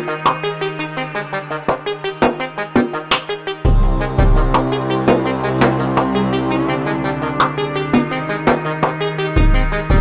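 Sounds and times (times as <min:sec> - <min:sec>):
background music with steady beat: 0:00.0 - 0:10.0
deep bass: 0:03.7 - 0:08.2.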